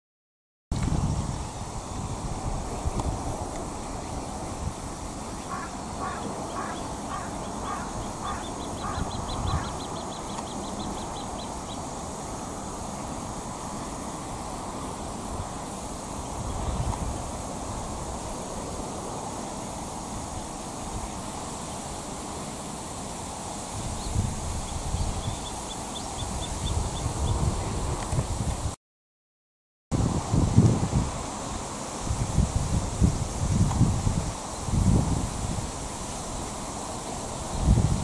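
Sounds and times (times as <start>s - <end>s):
wind rumbling on microphone: 0.7s - 21.4s, 23.7s - 28.8s, 29.9s - 38.0s
fast high ticks: 5.5s - 12.2s.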